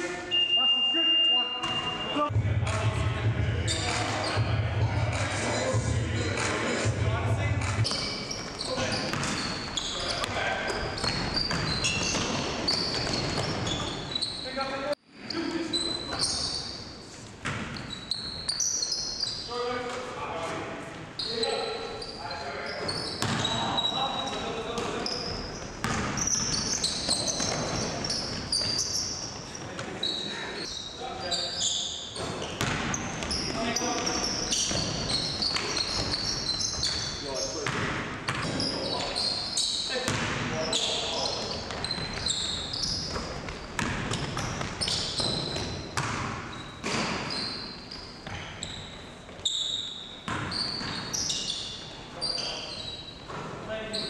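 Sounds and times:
sneakers squeaking on court: 1.6s - 2.3s, 3.7s - 4.4s, 7.6s - 20.0s, 21.1s - 54.0s
basketball bouncing on wooden floor: 7.8s - 9.6s, 23.2s - 23.5s, 25.8s - 28.9s, 32.2s - 38.6s, 43.1s - 47.2s, 50.3s - 51.0s.

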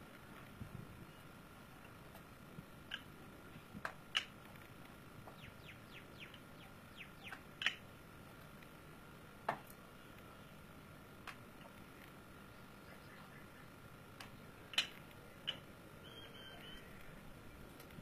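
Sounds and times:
faint high hum: 0.0s - 18.0s
birds chirping: 5.3s - 7.8s, 12.5s - 17.2s.

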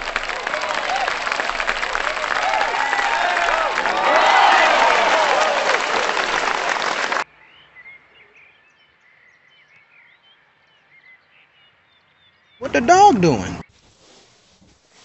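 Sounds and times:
crowd cheering and applauding: 0.0s - 7.2s
birds chirping: 7.3s - 13.6s.

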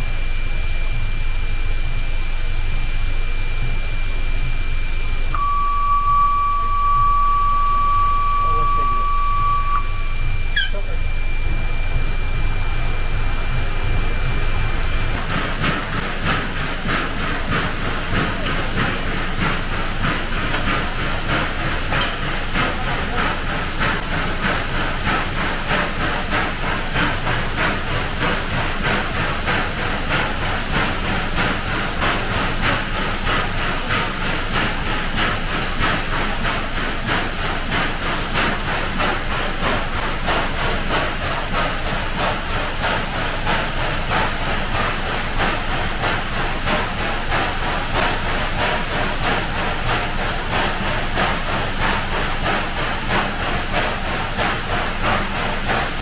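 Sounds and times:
steam hissing with fluttering pulse: 0.0s - 56.0s
high whine: 5.0s - 15.2s.

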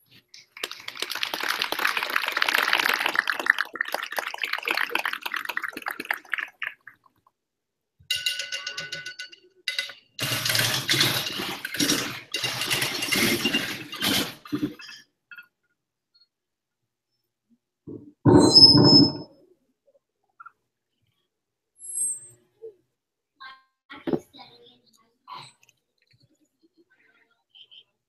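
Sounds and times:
rattling strikes on wheelbarrows: 8.1s - 14.8s
ringing tones: 18.3s - 19.3s.

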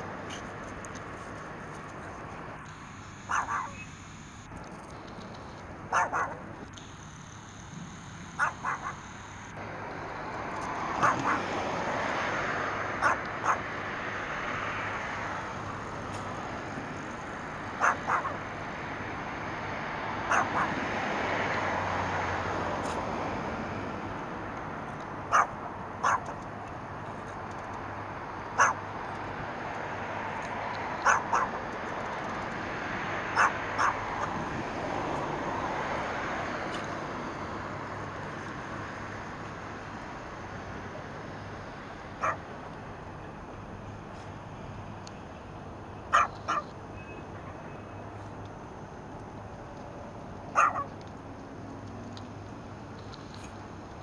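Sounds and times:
small dog yapping: 3.3s - 3.9s, 5.9s - 6.4s, 8.4s - 9.0s, 11.0s - 11.5s, 13.0s - 13.6s, 17.8s - 18.4s, 20.3s - 20.8s, 25.3s - 26.4s, 28.6s - 28.8s, 31.0s - 31.6s, 33.4s - 34.4s, 42.2s - 42.4s, 46.1s - 46.7s, 50.5s - 51.0s.

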